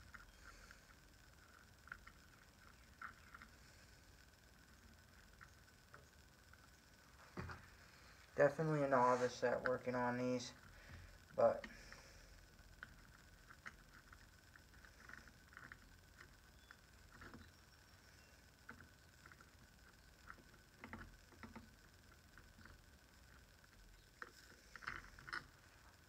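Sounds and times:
small tools clicking and tapping: 12.8 - 25.6.

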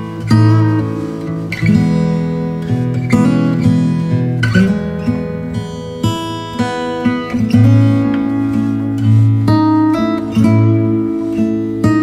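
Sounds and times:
acoustic guitar through speaker: 0.0 - 12.0.

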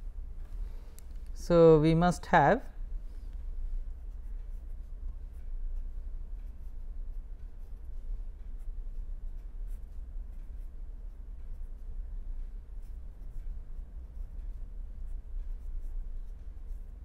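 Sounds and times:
steady low hum: 0.0 - 17.0
marker pen scratching on paper: 3.9 - 17.0.

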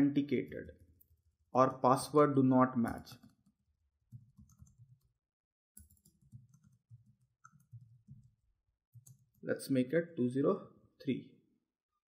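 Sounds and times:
typing on computer keyboard: 2.9 - 5.1, 5.8 - 9.4.

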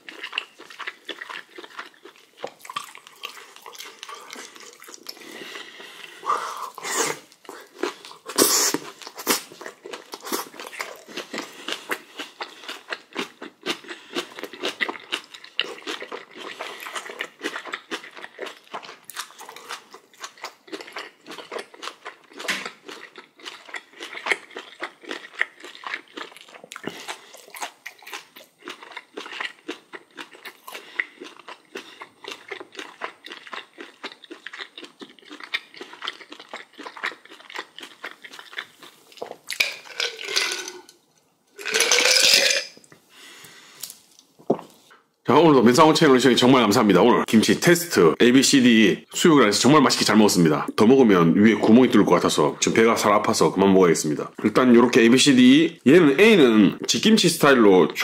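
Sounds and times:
person chewing and crunching food: 0.0 - 45.2.

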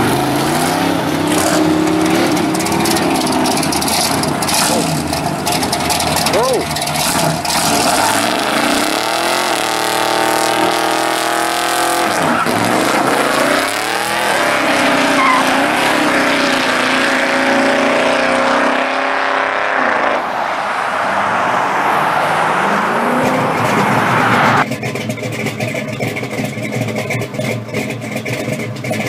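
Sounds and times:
tire squeal: 0.0 - 17.9
car engine revving hard: 0.0 - 24.7.

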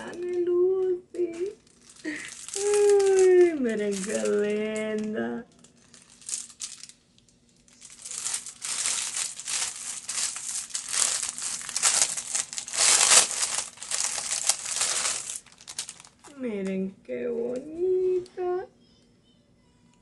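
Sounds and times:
plastic bag crinkling: 1.2 - 16.3.

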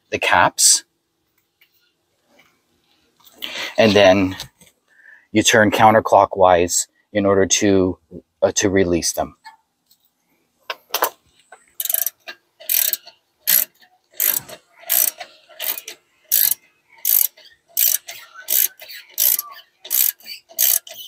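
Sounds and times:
hand ratchet clicking: 11.8 - 21.0.

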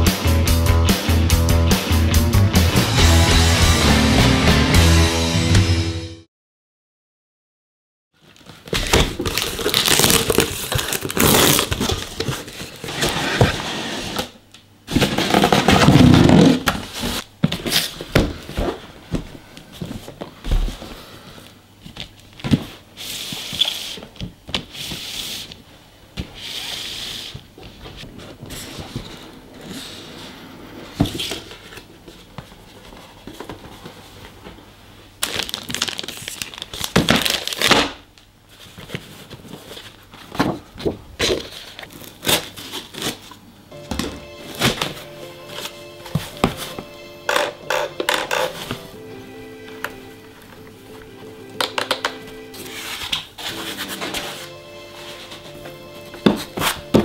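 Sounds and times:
paper and card rustling: 8.2 - 14.2, 50.4 - 57.0
cardboard boxes scraping and sliding: 10.8 - 18.9, 52.6 - 57.0.

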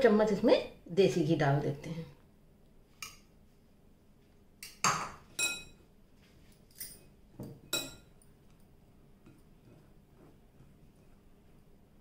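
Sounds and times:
spoon clinking against glass bowl: 4.6 - 5.8, 7.7 - 8.2.

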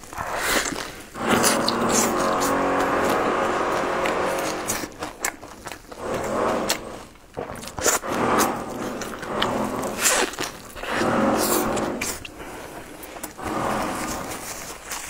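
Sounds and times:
chewing crunchy flatbread: 0.0 - 15.0.

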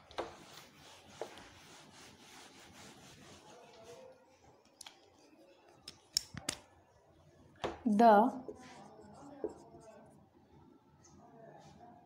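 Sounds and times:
cloth rubbing on whiteboard: 0.0 - 4.4.

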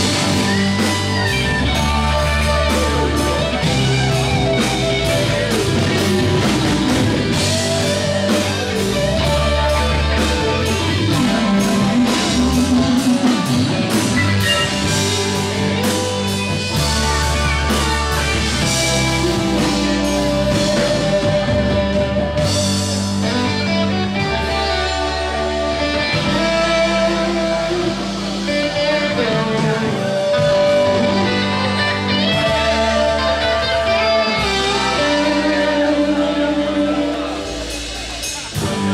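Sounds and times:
blues-rock band playing: 0.0 - 38.9
saxophone lines: 10.8 - 17.0.

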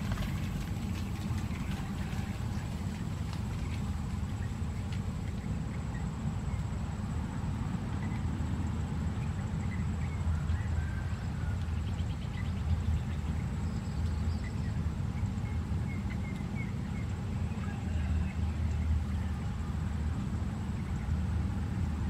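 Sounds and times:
low unsteady rumble: 0.0 - 22.0
bird chirps: 11.8 - 19.4.

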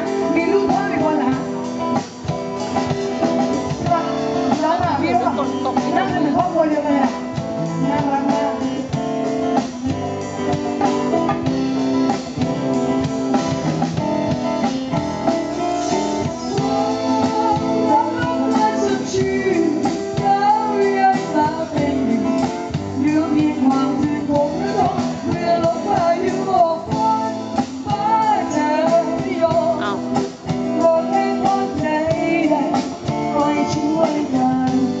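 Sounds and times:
woman singing into a microphone: 0.0 - 2.2, 2.9 - 9.8, 15.2 - 35.0
live band with drum kit: 0.0 - 35.0.

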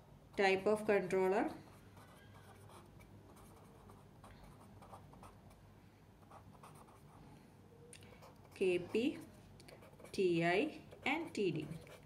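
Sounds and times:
marker scratching on paper: 1.5 - 5.5, 6.3 - 7.1, 8.2 - 12.0.

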